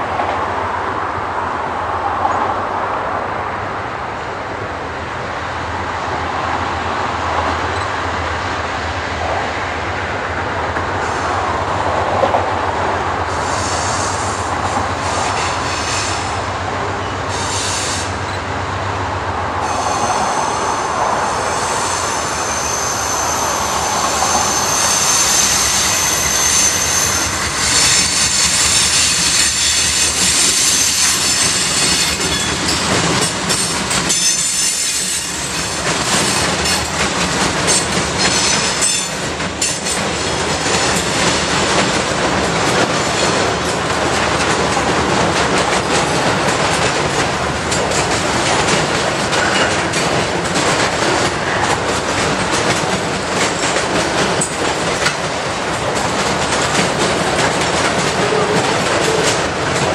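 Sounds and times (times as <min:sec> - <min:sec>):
freight train wheels rumbling: 0:00.0 - 0:59.9
high-pitched wheel squeal: 0:19.6 - 0:32.8.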